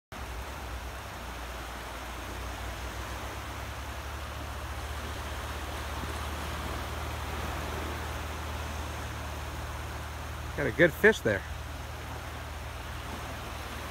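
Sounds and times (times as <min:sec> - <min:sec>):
even hiss: 0:04.7 - 0:13.9.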